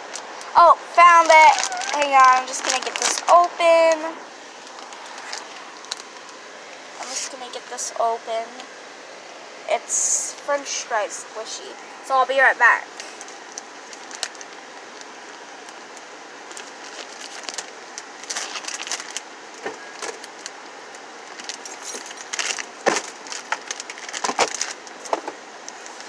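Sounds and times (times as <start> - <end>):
crinkly packaging rustles: 0.0 - 6.4, 13.0 - 15.8, 16.4 - 26.0.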